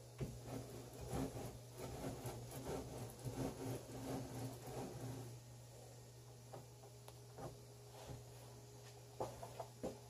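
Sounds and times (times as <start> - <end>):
lathe carriage scraping and clicking: 0.2 - 5.4.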